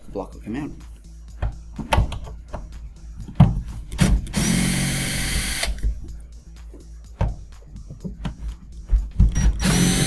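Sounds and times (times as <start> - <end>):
electric screwdriver running: 4.3 - 5.8, 9.4 - 10.0.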